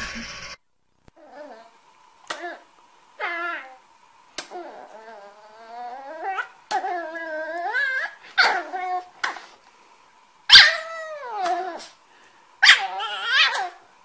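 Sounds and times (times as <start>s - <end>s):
puppy whining howls: 1.2s - 1.8s, 3.2s - 3.8s, 4.5s - 9.1s, 10.5s - 12.0s, 12.6s - 13.9s.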